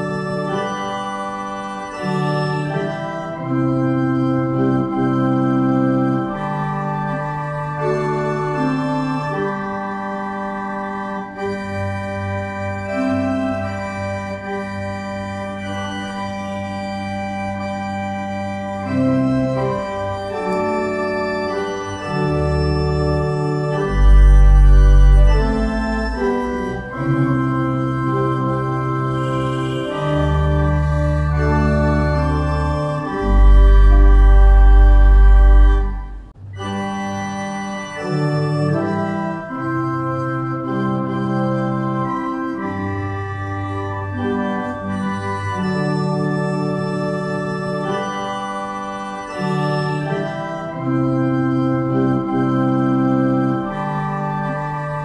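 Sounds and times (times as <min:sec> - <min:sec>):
deep organ bass note: 0:00.0 - 0:55.0
organ playing slow chords: 0:00.0 - 0:55.0.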